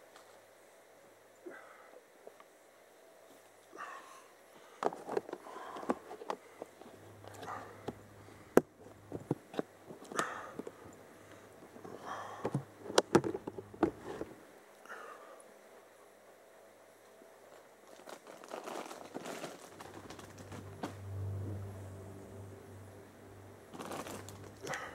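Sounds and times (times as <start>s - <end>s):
rustling: 17.4s - 21.3s, 23.7s - 24.9s.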